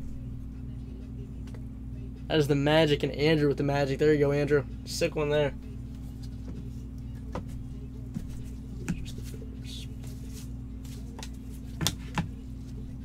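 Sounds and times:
steady low hum: 0:00.0 - 0:13.0
hands tapping cards: 0:06.2 - 0:09.4, 0:10.0 - 0:12.4.

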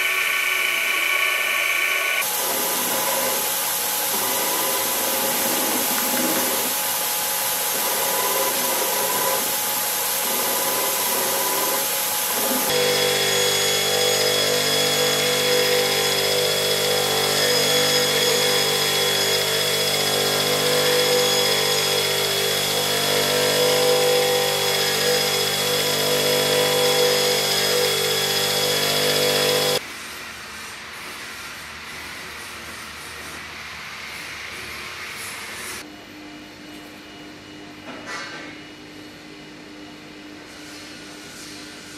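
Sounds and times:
belt grinder grinding metal: 0:00.0 - 0:06.8, 0:07.7 - 0:29.8.

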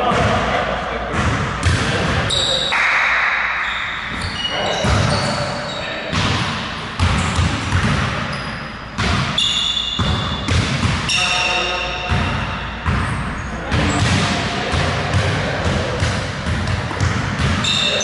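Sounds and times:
basketballs bouncing on hardwood: 0:01.1 - 0:02.2, 0:04.1 - 0:05.4, 0:06.1 - 0:08.4, 0:09.0 - 0:11.2, 0:12.1 - 0:18.0
sneaker squeaks: 0:02.2 - 0:02.9, 0:03.6 - 0:06.4, 0:07.0 - 0:14.2, 0:16.9 - 0:18.0.

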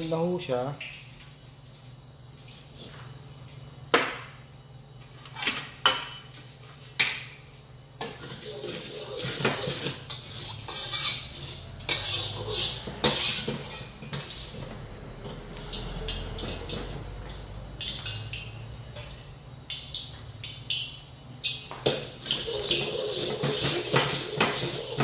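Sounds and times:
metal ladle scraping a wok: 0:08.0 - 0:16.8, 0:22.5 - 0:25.0.

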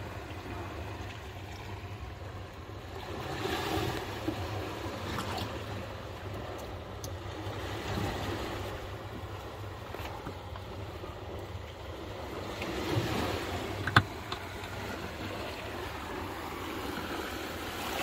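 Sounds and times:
boat engine low rumble: 0:00.0 - 0:18.0
water wash: 0:03.4 - 0:18.0.

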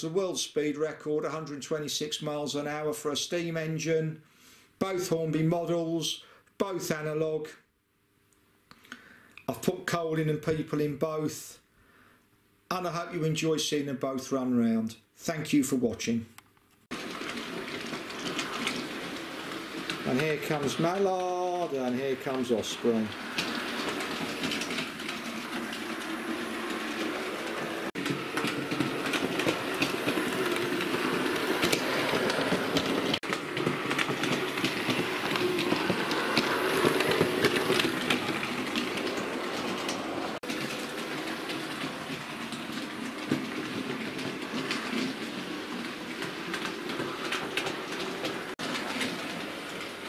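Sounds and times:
model train motors whirring: 0:16.9 - 0:50.0
wheels clicking over rail joints: 0:16.9 - 0:50.0.

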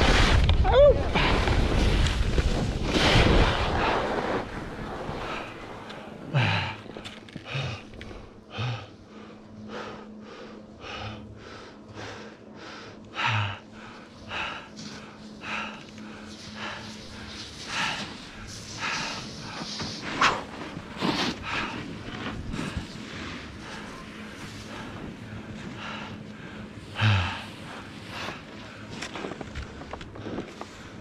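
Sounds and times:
skis scraping on snow: 0:00.0 - 0:08.2, 0:13.9 - 0:31.0
rush of wind: 0:00.0 - 0:08.3
heavy breathing: 0:05.2 - 0:31.0.

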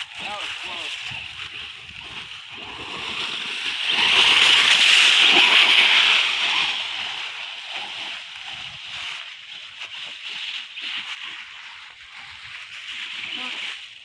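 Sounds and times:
toy truck tyres rustling leaves: 0:00.0 - 0:14.0.

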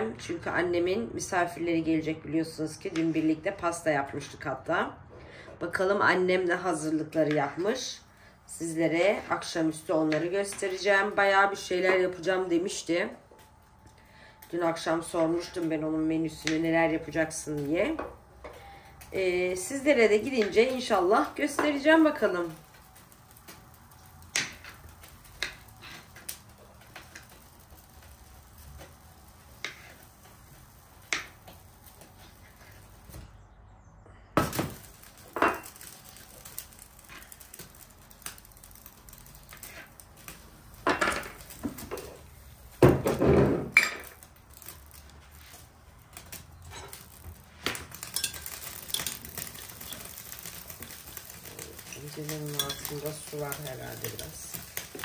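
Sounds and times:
butter hissing in frying pan: 0:16.6 - 0:33.3, 0:34.4 - 0:55.0
kitchenware clunks: 0:42.8 - 0:44.1.

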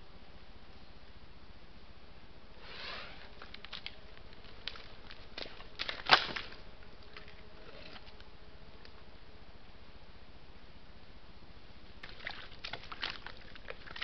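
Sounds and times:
splashing and squelching in mud: 0:03.5 - 0:08.2, 0:12.0 - 0:14.0.

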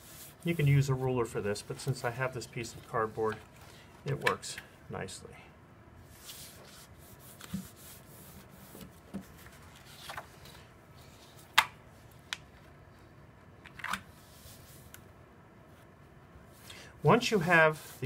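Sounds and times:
paper rubbing and sliding: 0:00.0 - 0:00.8, 0:06.1 - 0:11.4, 0:17.2 - 0:18.0.

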